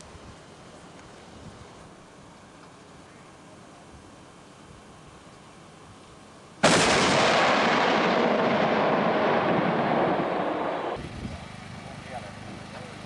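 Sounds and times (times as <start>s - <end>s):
mortar firing blast: 6.6s - 11.0s
long rumbling: 6.6s - 11.3s.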